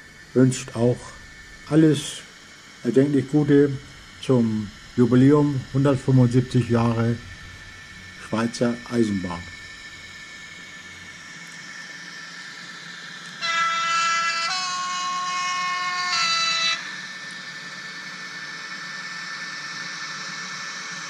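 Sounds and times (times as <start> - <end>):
model train running noise: 0.0 - 21.0
model train horn: 13.4 - 17.0.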